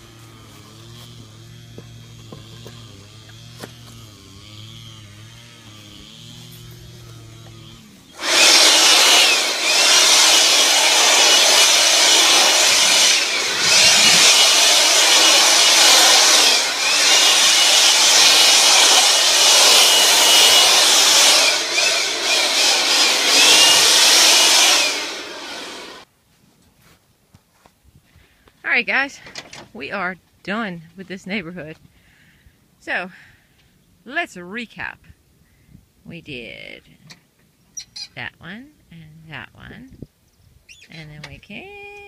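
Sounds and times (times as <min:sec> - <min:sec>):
leaf blower whining: 0:00.0 - 0:26.1.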